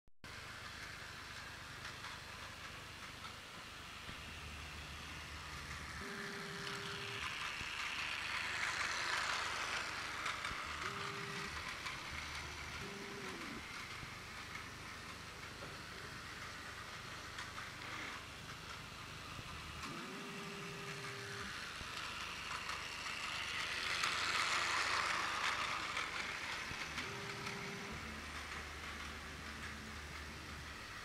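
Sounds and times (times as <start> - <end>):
toy train motor whirring: 0.3 - 31.0.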